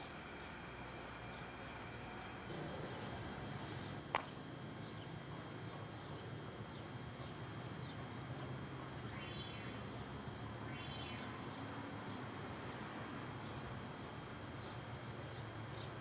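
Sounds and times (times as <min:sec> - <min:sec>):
distant diesel locomotives humming: 0:00.0 - 0:16.0
birds calling: 0:10.7 - 0:11.3.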